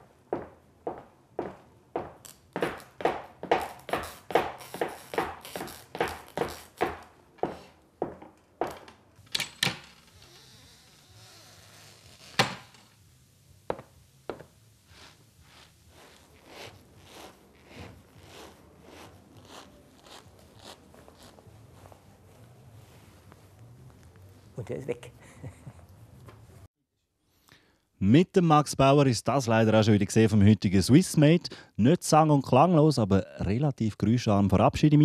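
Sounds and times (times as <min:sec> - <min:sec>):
wooden prop tapping footsteps: 0:00.3 - 0:09.1, 0:13.7 - 0:14.5.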